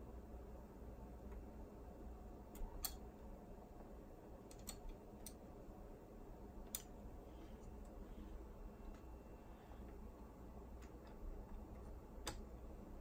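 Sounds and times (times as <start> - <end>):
faint low hum: 0.0 - 13.0
light clicks of small parts: 2.5 - 3.1, 4.4 - 5.4, 6.6 - 8.0.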